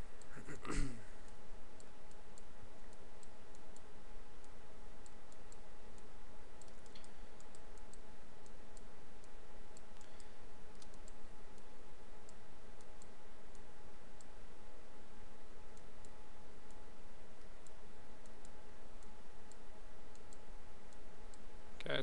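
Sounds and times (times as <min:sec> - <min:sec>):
faint hum: 0:00.0 - 0:22.0
computer mouse clicking: 0:01.3 - 0:14.4, 0:17.4 - 0:21.4.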